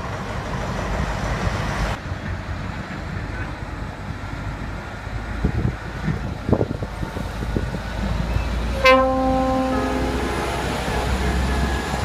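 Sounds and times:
two-tone air horn: 8.8s - 12.0s.

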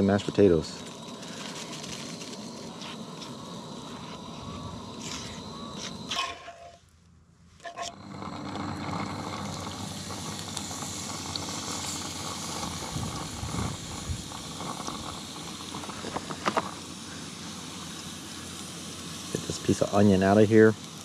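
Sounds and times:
meat sizzling in frying pan: 8.6s - 21.0s.

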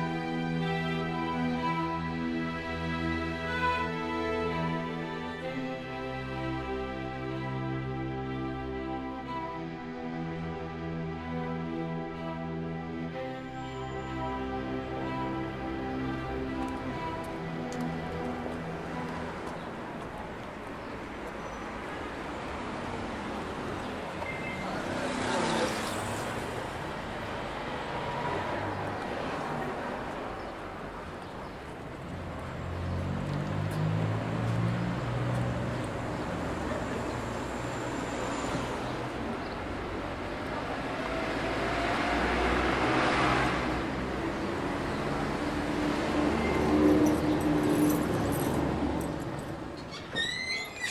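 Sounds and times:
music: 0.0s - 27.4s, 30.4s - 50.9s
distant traffic: 0.0s - 50.9s
vehicle passing close: 32.2s - 49.9s.

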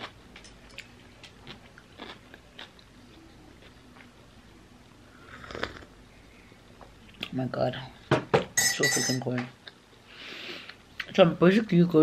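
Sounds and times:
chewing with crisp crunches: 0.0s - 4.2s
person sipping coffee: 5.2s - 5.9s.

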